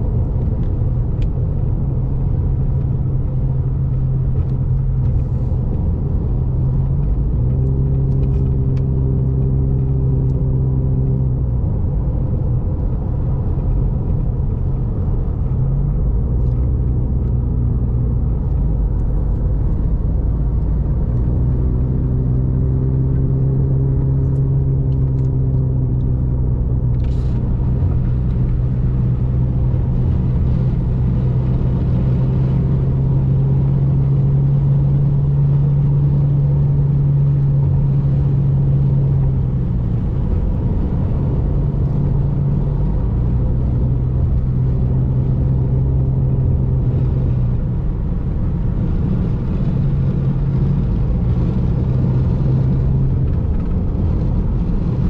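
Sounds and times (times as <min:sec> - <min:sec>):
car road and engine drone: 0:00.0 - 0:55.0.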